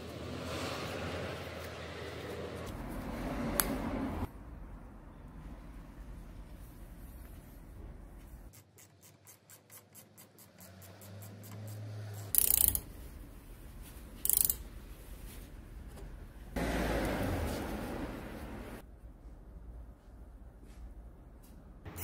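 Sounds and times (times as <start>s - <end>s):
ratcheting wrench clicking: 12.3s - 12.9s, 14.2s - 14.6s.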